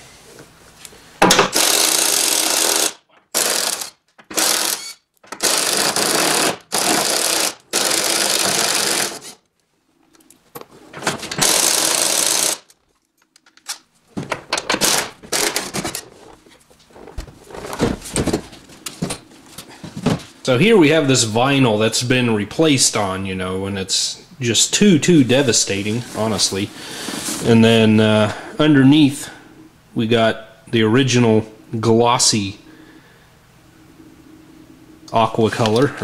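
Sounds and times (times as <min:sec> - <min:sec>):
impact wrench hammering: 0:01.2 - 0:09.2.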